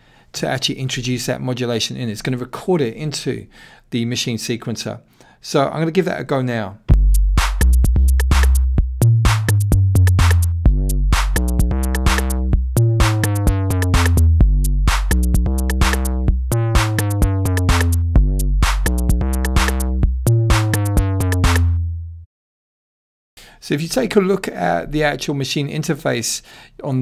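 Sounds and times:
sliding bass kick-drum beat: 0:06.9 - 0:21.9
rapid hi-hat ticks: 0:07.0 - 0:12.4, 0:13.0 - 0:16.2, 0:16.8 - 0:19.9.

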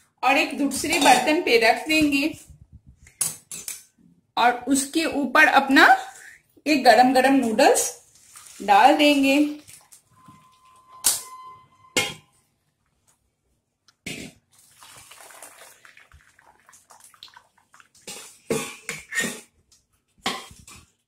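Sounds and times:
water pouring and draining: 0:08.0 - 0:11.0, 0:14.5 - 0:18.5.

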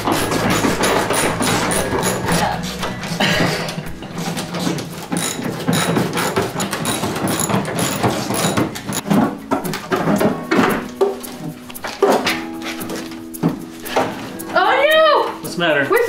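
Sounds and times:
metallic knocks: 0:00.0 - 0:11.2
ratchet wrench clicking: 0:00.5 - 0:02.4, 0:05.1 - 0:09.0.

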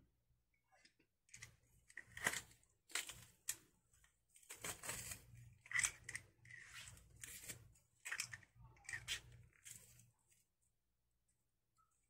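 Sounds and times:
garlic press crushing garlic: 0:01.3 - 0:03.6, 0:04.6 - 0:06.6, 0:07.2 - 0:09.8.

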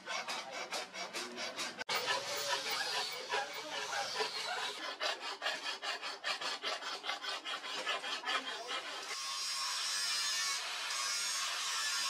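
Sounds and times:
angle grinder on steel: 0:00.0 - 0:12.0
file rasping on steel blade: 0:00.0 - 0:12.0.

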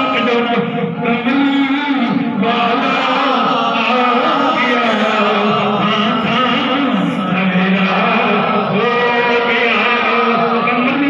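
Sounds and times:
men chanting: 0:00.0 - 0:11.0.

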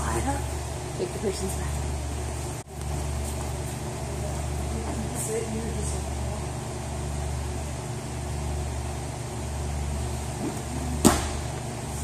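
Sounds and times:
steady low hum: 0:00.0 - 0:12.0
body slapping a mat: 0:10.4 - 0:11.6.

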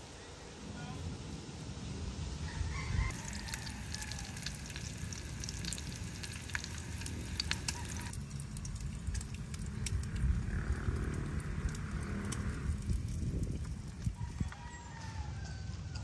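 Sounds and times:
bacon sizzling in a pan: 0:03.1 - 0:08.4.

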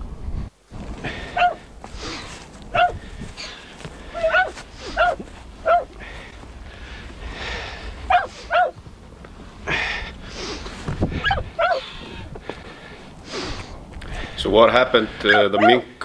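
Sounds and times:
rustling: 0:00.6 - 0:14.2
dog yelping: 0:01.3 - 0:01.6, 0:02.7 - 0:03.0, 0:04.1 - 0:05.9, 0:08.1 - 0:08.8, 0:11.2 - 0:12.0, 0:15.3 - 0:15.8.

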